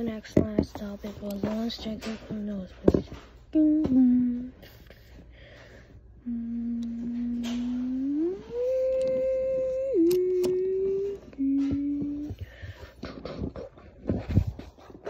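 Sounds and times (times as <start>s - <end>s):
person humming: 3.6s - 4.8s, 6.2s - 13.7s.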